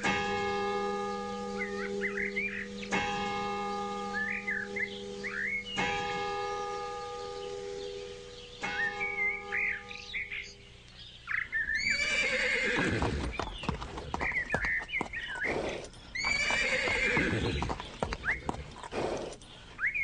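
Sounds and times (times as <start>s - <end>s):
small birds chirping: 0.8s - 20.0s
horse whinnying: 11.8s - 14.3s, 15.4s - 19.3s
hooves clopping: 11.9s - 20.0s.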